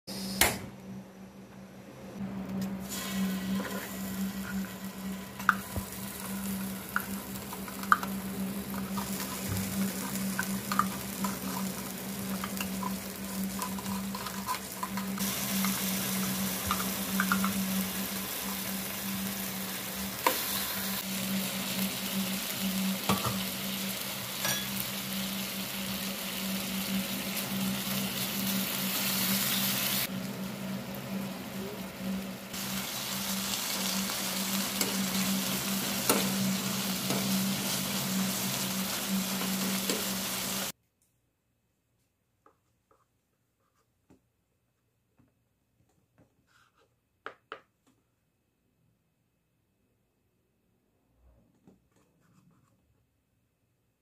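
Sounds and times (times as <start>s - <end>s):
meat sizzling in a frying pan: 2.9s - 40.7s
metal spoon scraping tin and pan: 8.7s - 16.1s, 24.4s - 24.8s.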